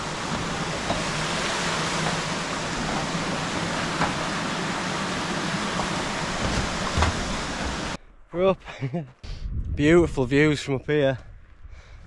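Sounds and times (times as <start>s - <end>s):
footsteps on metal footbridge: 5.7s - 8.0s.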